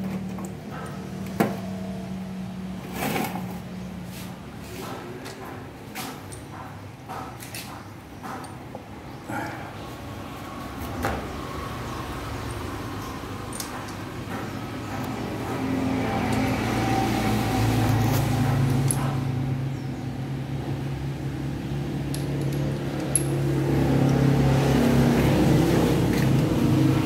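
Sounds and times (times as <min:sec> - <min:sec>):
engine humming: 0:08.2 - 0:27.0
metal parts clicking: 0:22.1 - 0:23.4.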